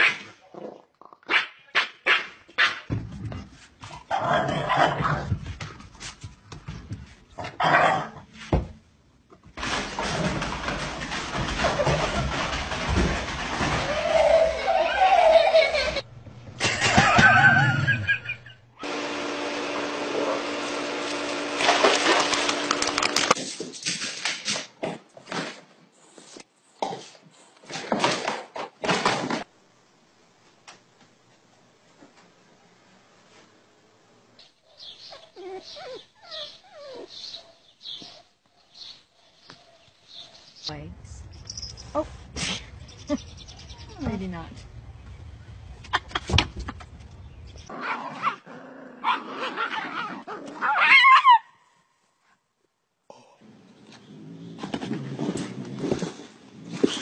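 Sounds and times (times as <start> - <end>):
small dog yelping and whimpering: 35.1 - 37.2, 49.0 - 51.5.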